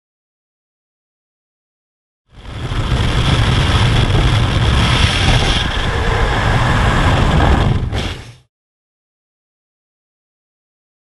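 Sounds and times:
aircraft engine noise: 2.3 - 8.5
loud rushing wind: 2.3 - 8.5.

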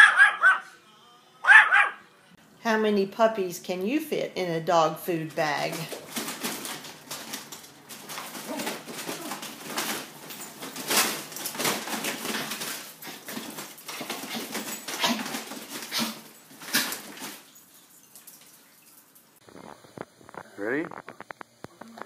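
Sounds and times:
bag crinkling and rustling: 5.7 - 17.9.

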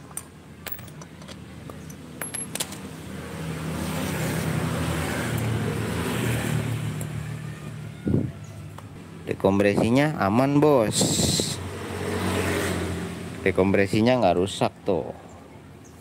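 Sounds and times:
motor vehicle passing: 2.3 - 9.2, 11.0 - 13.6.

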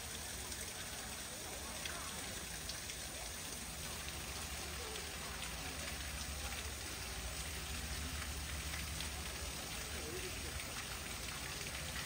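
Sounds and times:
running splashing water: 0.0 - 12.0.

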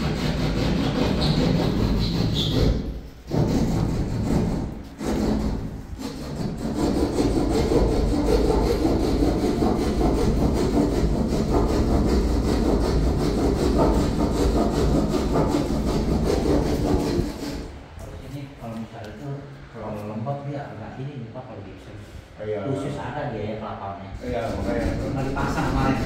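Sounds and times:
hand saw rasping: 0.0 - 17.7, 24.2 - 26.0.

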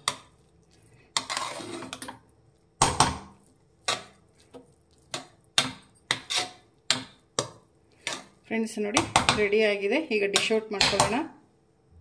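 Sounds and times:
spatula scraping pot: 0.0 - 2.2, 3.8 - 9.6.

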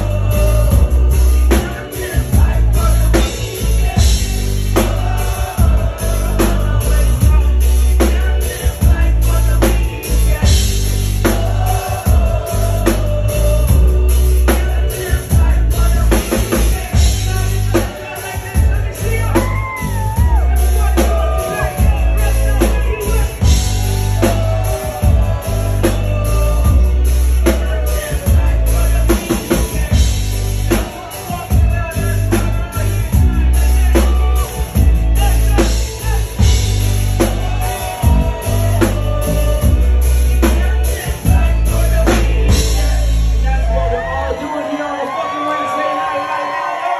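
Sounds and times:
lead singer on microphone: 0.0 - 46.9
live band playing loud: 0.0 - 46.9.

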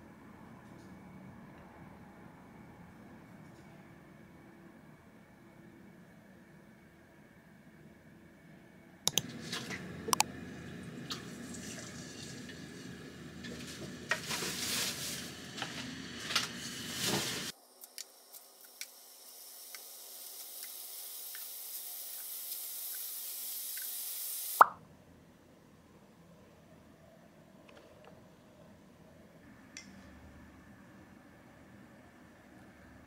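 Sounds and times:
meat sizzling in a pan: 19.0 - 24.6.

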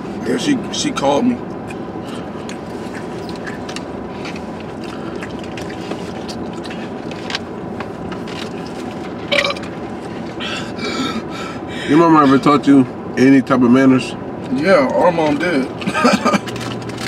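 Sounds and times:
chewing: 1.6 - 10.5.

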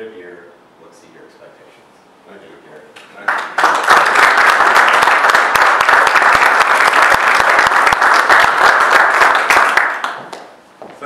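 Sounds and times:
audience applauding: 3.2 - 10.5.

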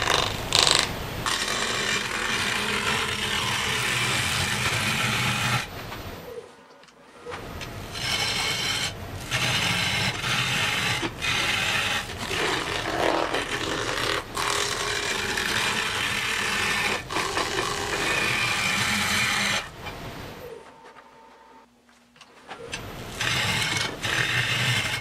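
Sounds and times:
lathe gouge scraping wet wood: 0.0 - 6.0, 7.7 - 20.4, 23.0 - 25.0.

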